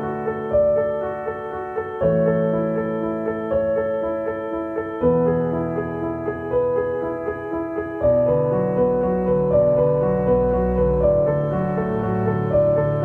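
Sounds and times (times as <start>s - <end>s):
piano background music: 0.0s - 13.0s
low accompaniment: 5.0s - 13.0s.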